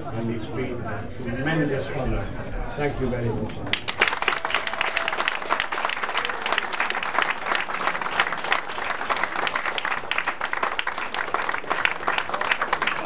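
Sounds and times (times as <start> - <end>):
crowd applauding: 3.6 - 13.0.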